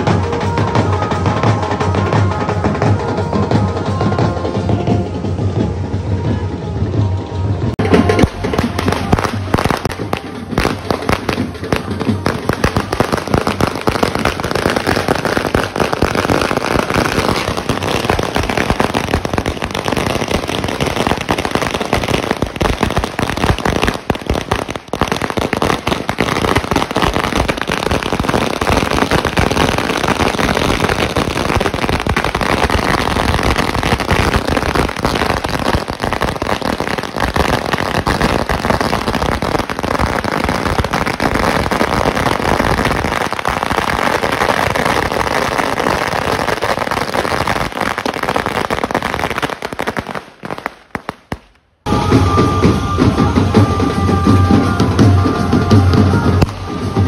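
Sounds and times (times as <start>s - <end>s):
firecracker string crackling: 7.1s - 57.0s.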